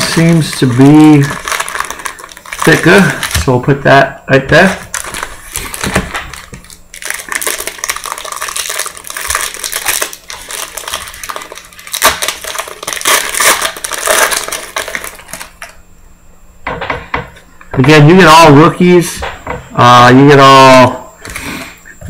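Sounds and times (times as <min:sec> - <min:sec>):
foil wrapper tearing and crinkling: 0:00.0 - 0:03.6, 0:04.7 - 0:15.8.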